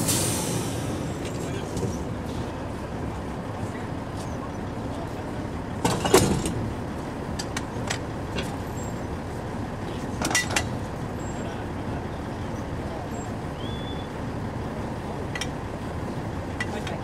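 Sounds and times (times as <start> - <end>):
metal pipe clanks: 10.2 - 10.7.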